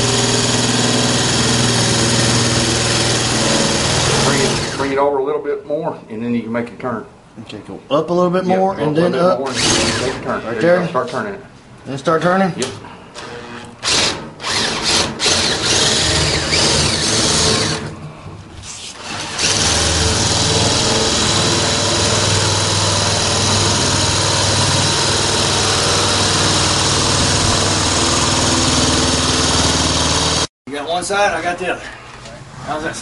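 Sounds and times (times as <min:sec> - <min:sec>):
electric shears cutting sheet metal: 0:00.0 - 0:05.0, 0:09.5 - 0:10.3, 0:13.2 - 0:17.9, 0:19.0 - 0:30.5.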